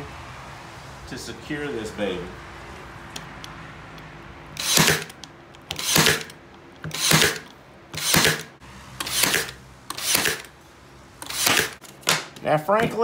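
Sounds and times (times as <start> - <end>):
nailer firing into wood: 4.6 - 6.3, 6.9 - 10.5, 11.2 - 12.4.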